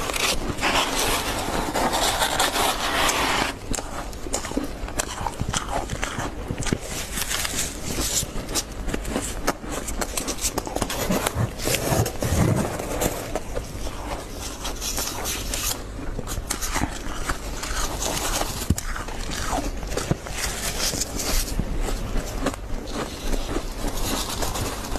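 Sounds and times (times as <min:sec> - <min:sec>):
plastic scoop scraping frost: 0:00.0 - 0:03.7, 0:10.1 - 0:15.8
frost crunching: 0:00.0 - 0:24.9.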